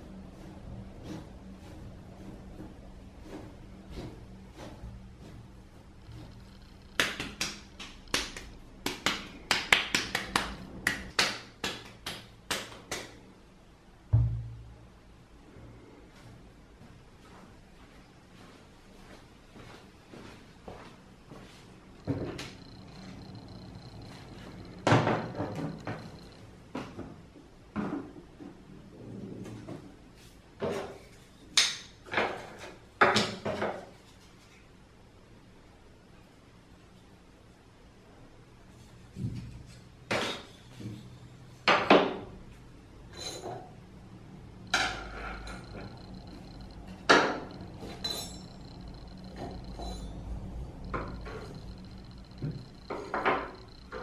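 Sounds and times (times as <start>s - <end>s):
hands patting clay: 6.9s - 13.2s.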